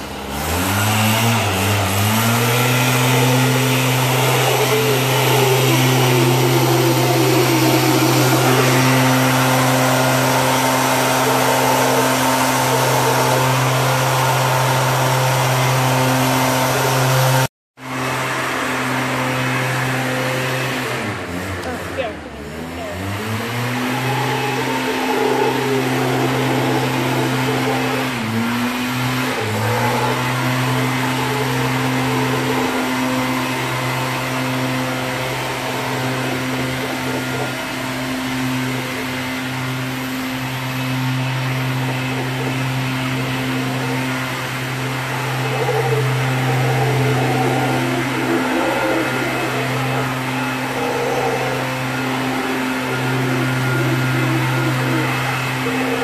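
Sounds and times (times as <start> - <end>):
howler monkeys roaring: 0.7 - 17.5, 23.2 - 56.0.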